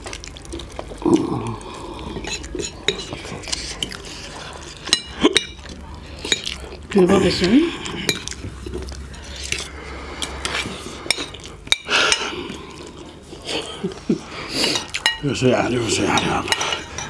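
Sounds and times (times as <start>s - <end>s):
cutlery clinking on ceramic plates: 2.2s - 3.3s, 4.8s - 5.7s, 14.6s - 17.0s.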